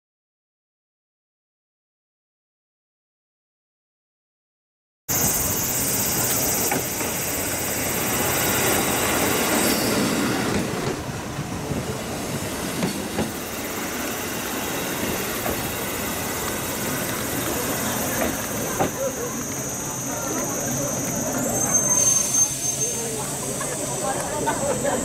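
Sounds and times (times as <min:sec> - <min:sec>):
diesel railcar passing: 0:05.1 - 0:25.0.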